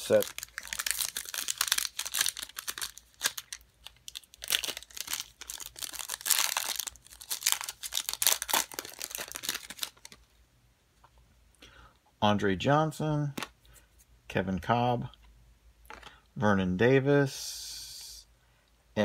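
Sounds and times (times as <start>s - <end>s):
foil wrapper crinkling and tearing: 0.0s - 10.2s.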